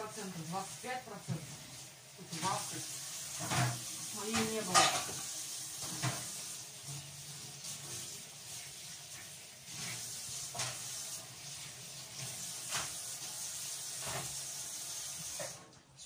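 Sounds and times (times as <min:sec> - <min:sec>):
tap water running into sink: 0:00.0 - 0:15.7
dishes clinking: 0:03.4 - 0:06.3.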